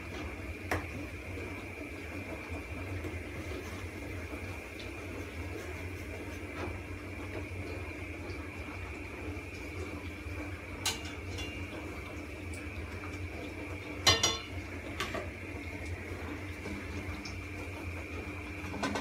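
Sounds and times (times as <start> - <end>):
metal utensil clinking on pan: 14.1 - 14.5.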